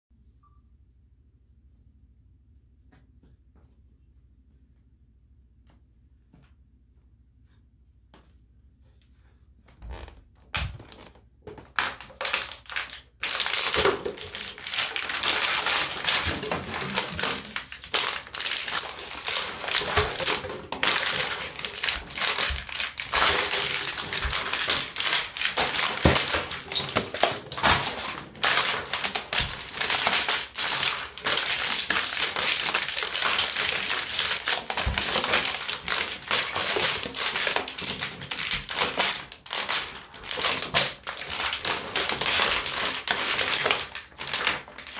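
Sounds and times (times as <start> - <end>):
plastic bottles crunching underfoot: 9.9 - 44.9.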